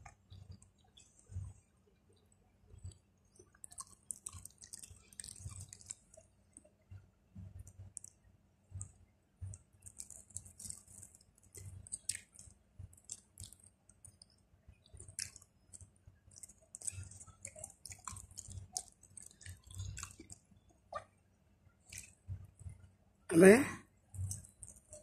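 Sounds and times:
wet chewing: 0:02.8 - 0:06.7, 0:07.4 - 0:21.1, 0:21.9 - 0:22.8, 0:24.2 - 0:25.0.

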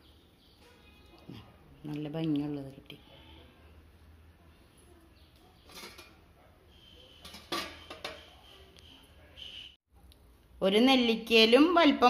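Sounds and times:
steel kitchen vessels clinking: 0:05.6 - 0:08.6.

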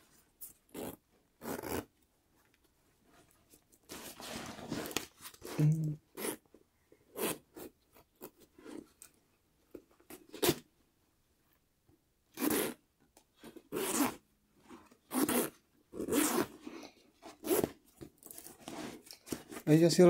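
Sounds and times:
metal zipper zipping: 0:00.6 - 0:01.9, 0:03.9 - 0:06.4, 0:07.1 - 0:08.9, 0:10.1 - 0:10.6, 0:12.3 - 0:12.8, 0:13.4 - 0:14.2, 0:14.8 - 0:19.6.

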